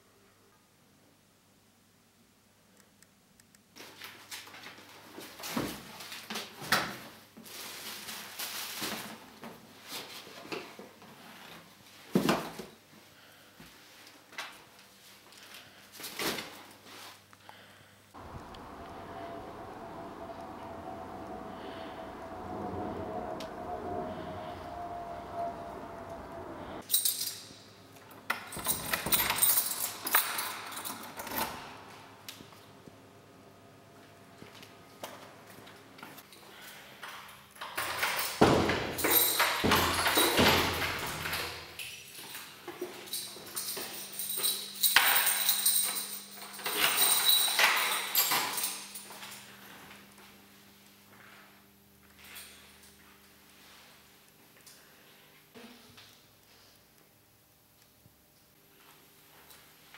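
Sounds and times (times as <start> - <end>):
steady background hum: 17.3 - 59.9
keys jangling against a lock: 26.8 - 27.6, 28.4 - 31.7, 37.1 - 49.3.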